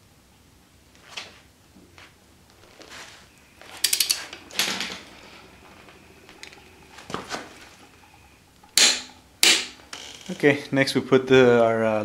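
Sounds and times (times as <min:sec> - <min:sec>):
metallic clatter: 0:03.7 - 0:05.1.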